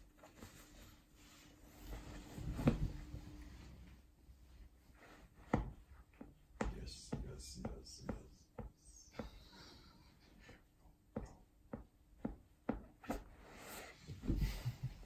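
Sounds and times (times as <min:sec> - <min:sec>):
sheet and denim rustling: 0:00.0 - 0:05.4
feet thumping on mattress: 0:01.8 - 0:03.6, 0:14.1 - 0:15.0.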